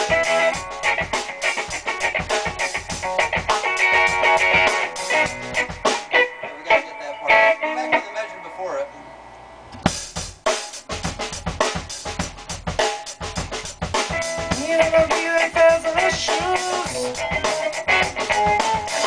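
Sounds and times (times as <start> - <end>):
drum kit playing a beat: 0.0 - 8.5, 9.7 - 19.0
guitar sustained notes: 0.0 - 9.8, 14.6 - 19.0.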